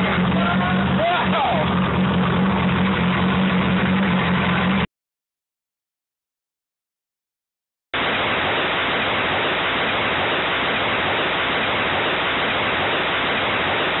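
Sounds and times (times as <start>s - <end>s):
distorted exhaust roar: 0.0s - 4.9s, 8.0s - 14.0s.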